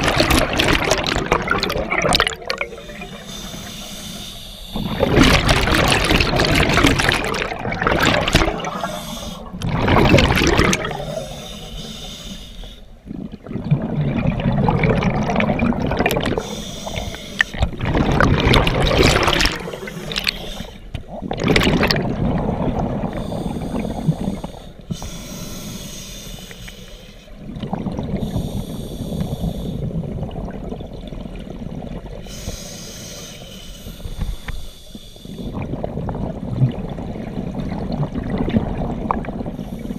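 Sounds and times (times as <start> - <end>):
rushes of exhaled bubbles: 0.0 - 3.3, 4.7 - 11.6, 13.0 - 25.0, 27.4 - 32.3, 35.4 - 39.9
bubbling water: 0.0 - 3.5, 4.7 - 11.6, 12.9 - 25.0, 27.4 - 32.3, 35.4 - 39.9
diver breathing through regulator: 2.4 - 7.4, 8.3 - 9.6, 10.4 - 13.0, 16.2 - 17.8, 19.0 - 20.9, 23.0 - 27.4, 28.1 - 29.9, 32.2 - 35.6, 39.5 - 39.9.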